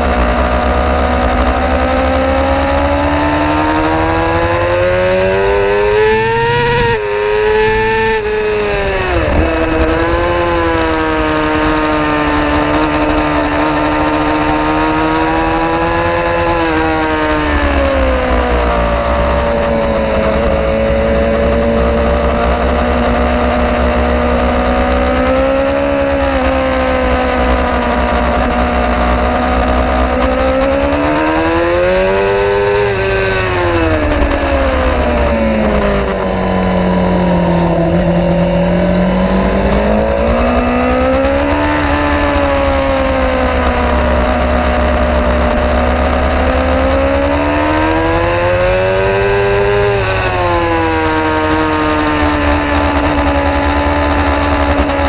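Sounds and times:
motorcycle engine revving: 0.0 - 55.0.

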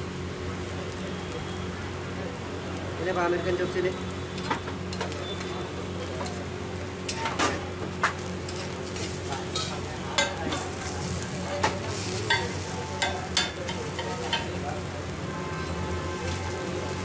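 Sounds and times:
steady sizzle: 0.0 - 17.0
metal spatula chopping on griddle: 7.1 - 14.6.

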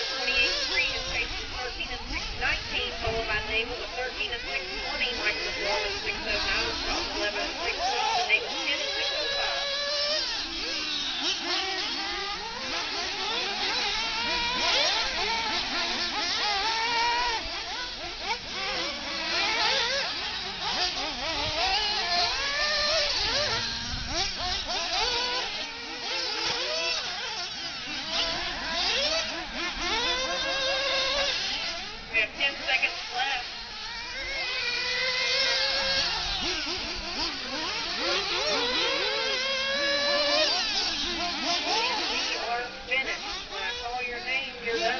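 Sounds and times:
small engines whining: 0.0 - 44.9.

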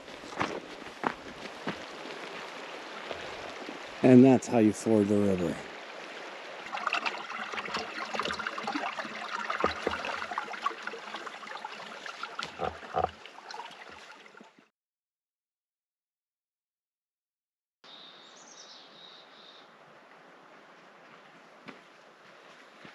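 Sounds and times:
mountain creek water rushing: 0.0 - 14.6.

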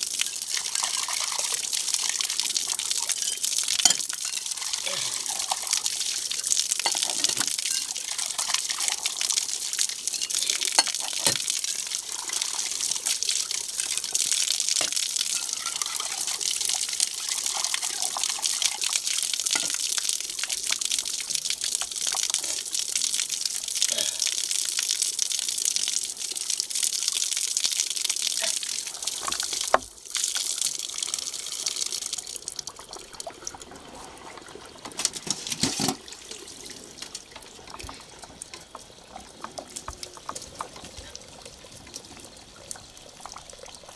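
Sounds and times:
water gushing onto concrete: 0.0 - 43.9
metal cups clinking: 3.1 - 5.6, 6.8 - 7.9, 10.1 - 11.5.

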